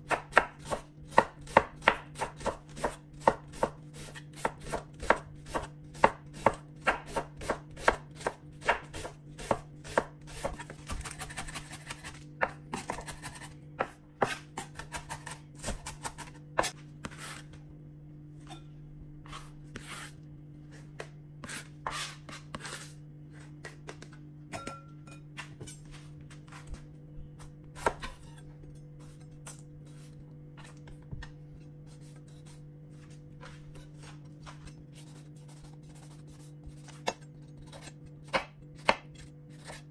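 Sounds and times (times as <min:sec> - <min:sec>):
faint steady hum: 0:00.0 - 0:39.9
knife chopping on wooden board: 0:00.1 - 0:17.4, 0:27.8 - 0:28.4, 0:36.8 - 0:39.8
knife scraping board: 0:12.8 - 0:17.6, 0:19.2 - 0:23.6, 0:27.8 - 0:30.8, 0:31.9 - 0:38.0, 0:38.8 - 0:39.9.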